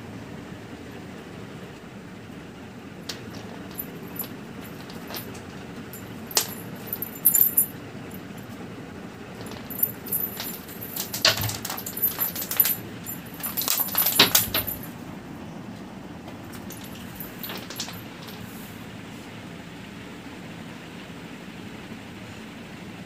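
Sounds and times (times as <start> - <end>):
toy clicking and jingling on concrete: 3.1 - 8.6, 9.4 - 15.0, 16.5 - 18.6.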